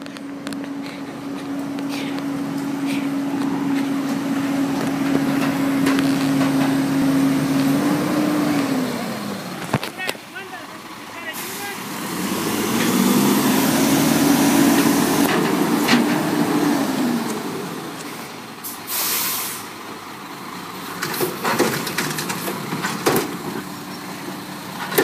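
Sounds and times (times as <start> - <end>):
garbage truck engine and hydraulics: 0.0 - 25.0
air brakes hissing: 18.6 - 19.8.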